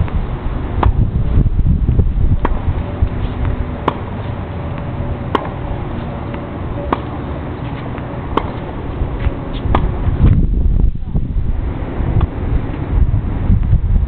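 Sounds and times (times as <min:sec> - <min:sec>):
tennis balls struck by rackets: 0:00.7 - 0:01.1, 0:02.3 - 0:10.4.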